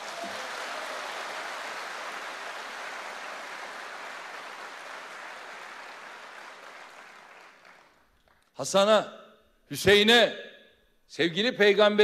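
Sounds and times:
crowd applauding: 0.0s - 8.5s.

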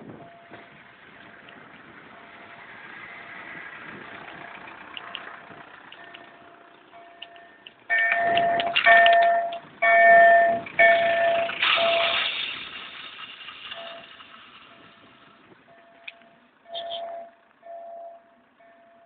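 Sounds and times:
loud pulsing alarm tone: 6.9s - 12.2s.

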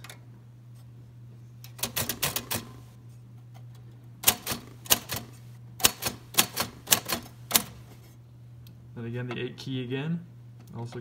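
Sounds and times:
steady low hum: 0.0s - 11.0s
typewriter keys clacking: 1.8s - 2.8s, 4.2s - 7.8s.

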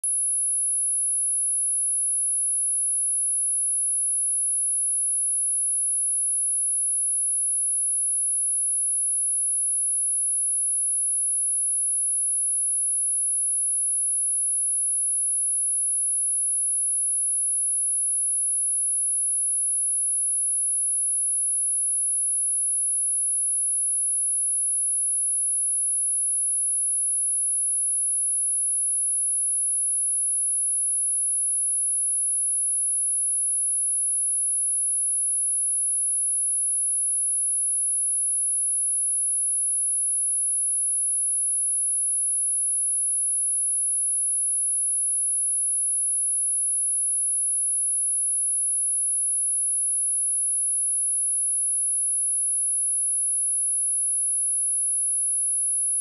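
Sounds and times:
high-pitched sine test tone: 0.0s - 5.7s, 39.1s - 56.0s.

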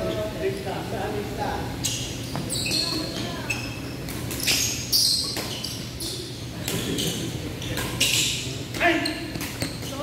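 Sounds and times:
shoes squeaking on court floor: 1.8s - 10.0s.

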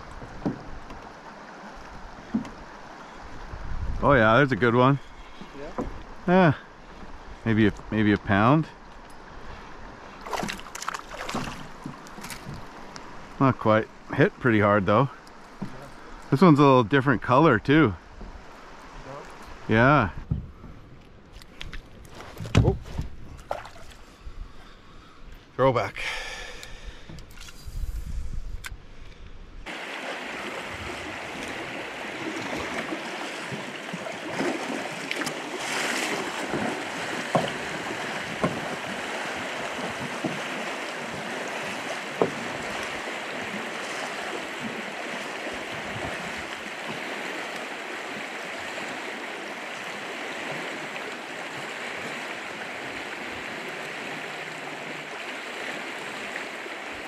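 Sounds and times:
river water rushing over rocks: 29.7s - 57.0s
sharp knocks: 38.4s - 38.8s.

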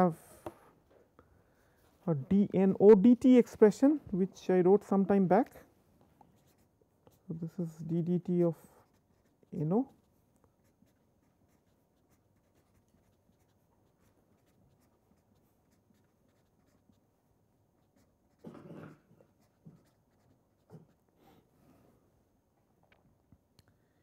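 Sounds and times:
short breath: 0.2s - 2.0s
marker scratching on paper: 6.4s - 7.4s, 8.7s - 17.1s, 17.8s - 21.0s.

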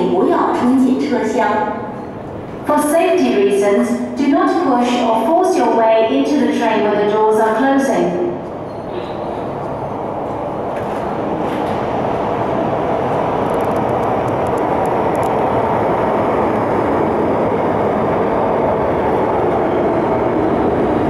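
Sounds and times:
train wheels rushing rumble: 8.4s - 21.0s.

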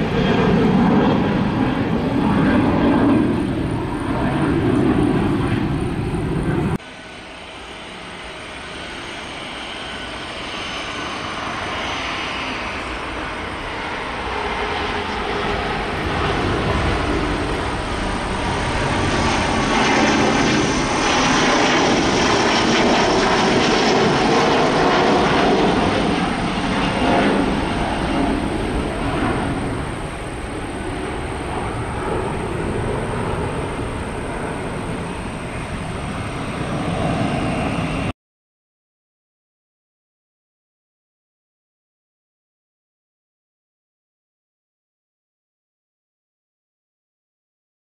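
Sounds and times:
jet engines roaring at take-off: 0.0s - 38.1s.

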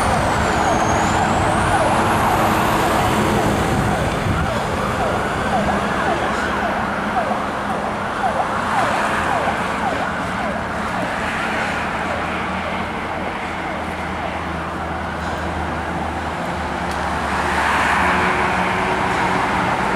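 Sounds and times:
fire truck sirens yelping: 0.0s - 19.9s
road traffic noise: 0.0s - 19.9s.

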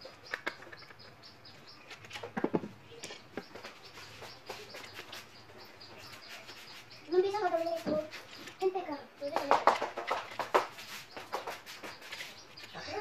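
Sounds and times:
faint high chirps: 2.8s - 9.5s.

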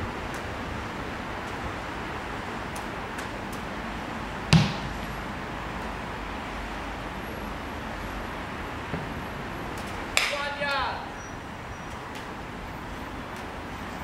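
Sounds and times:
outdoor background hiss: 0.0s - 14.0s
football being kicked: 4.5s - 5.0s.

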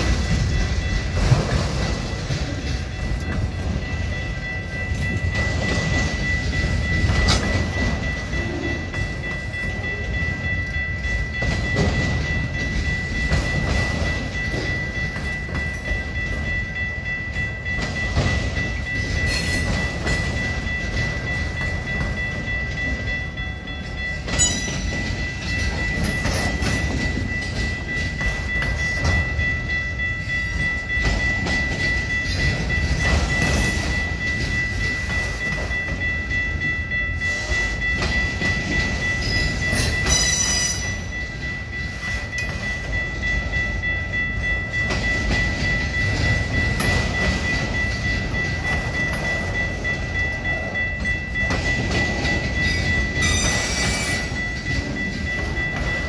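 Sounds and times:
freight train wheels rumbling on rail: 0.0s - 56.0s
high-pitched ring: 0.0s - 56.0s
rail clacks: 0.0s - 56.0s.

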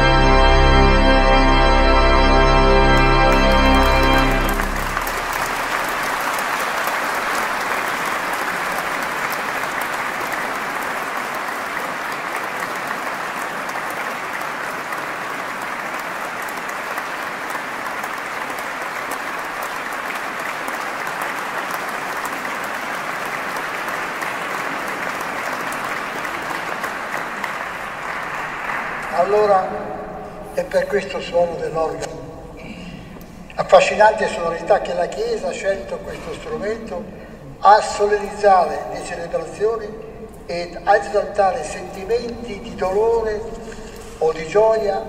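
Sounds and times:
audience applauding: 0.0s - 31.2s.

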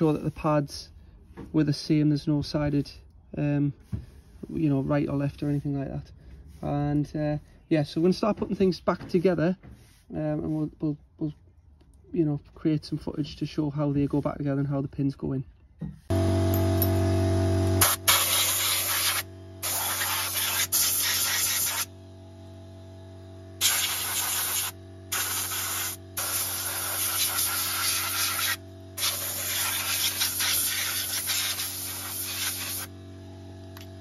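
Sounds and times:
steady low hum: 16.0s - 34.0s
compressed air blow gun hissing: 17.8s - 21.9s, 23.6s - 32.9s.

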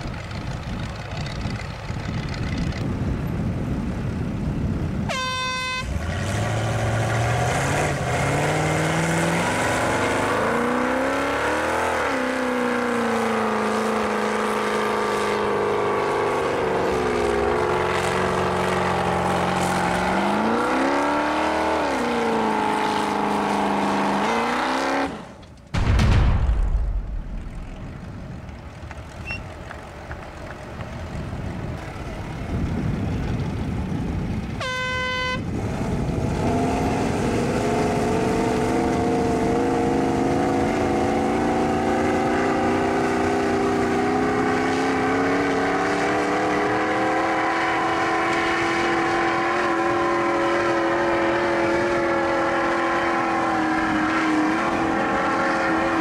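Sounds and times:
wheels spinning in dirt: 0.0s - 4.9s, 27.0s - 34.6s
short horn toot: 5.1s - 6.0s, 34.6s - 35.5s
engines revving hard: 5.8s - 25.4s, 35.5s - 56.0s.

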